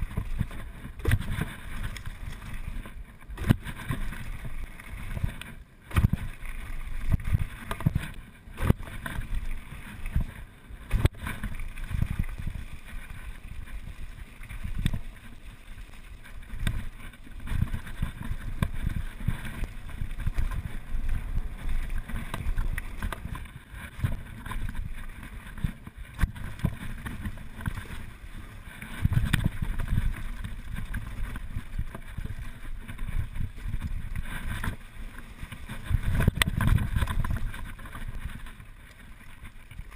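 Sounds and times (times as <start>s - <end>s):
bike rattling: 0.0s - 39.9s
wind buffeting microphone: 16.3s - 38.5s.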